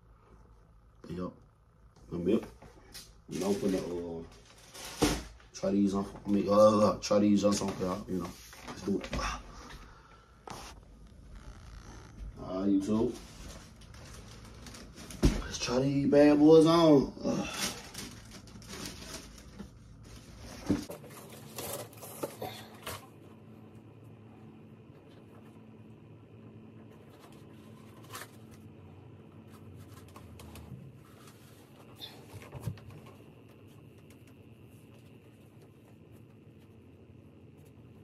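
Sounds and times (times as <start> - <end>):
faint steady hum: 0.0 - 38.0
paper rustling: 3.3 - 5.3, 10.5 - 15.8, 17.4 - 22.5, 26.8 - 28.7.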